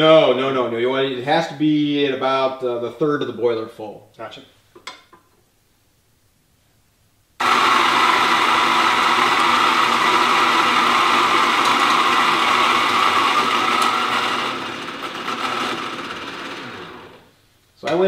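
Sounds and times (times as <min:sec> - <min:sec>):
coffee grinder grinding beans: 0:07.4 - 0:17.3.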